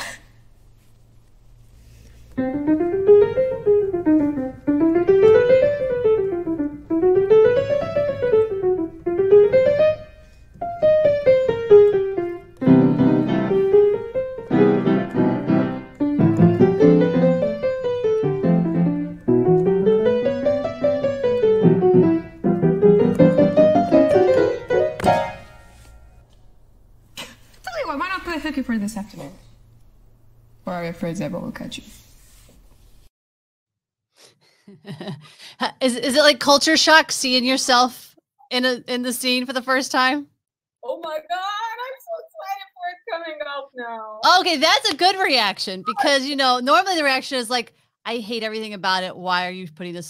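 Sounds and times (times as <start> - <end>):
piano playing flowing runs: 2.4 - 26.2.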